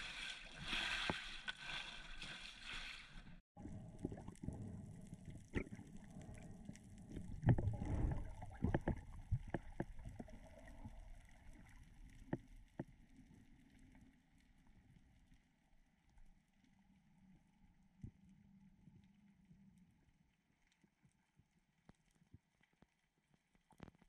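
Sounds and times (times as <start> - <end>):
muffled underwater rumble: 3.6 - 22.6.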